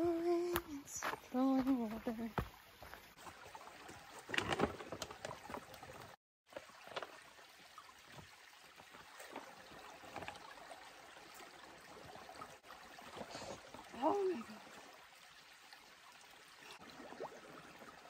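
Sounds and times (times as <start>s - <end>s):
stream trickling over rocks: 0.1s - 18.0s.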